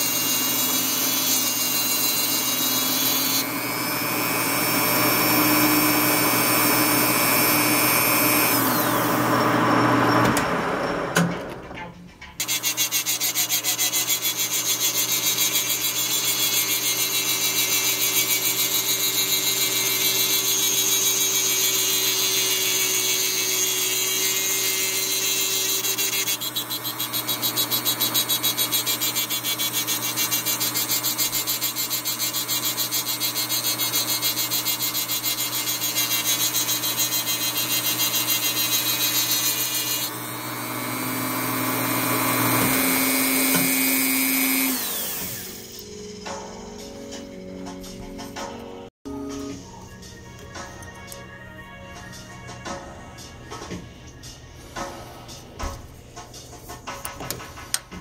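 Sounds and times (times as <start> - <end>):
rotary tool grinding whine: 0.0 - 11.0, 12.4 - 47.4.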